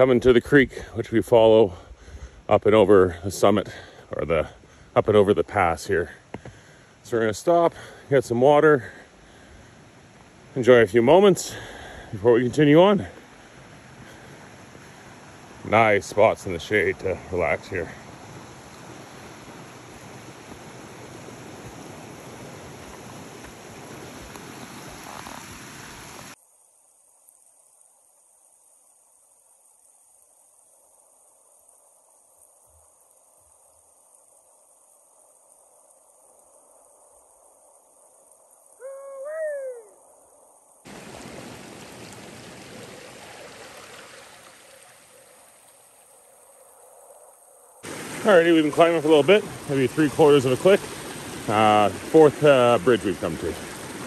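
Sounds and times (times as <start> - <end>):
creek water rushing: 0.0 - 26.4, 40.8 - 54.0
rising and falling call: 38.8 - 40.0.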